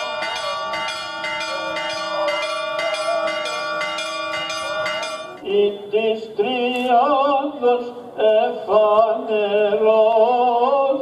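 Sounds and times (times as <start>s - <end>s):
church bells ringing rapidly: 0.0s - 5.5s.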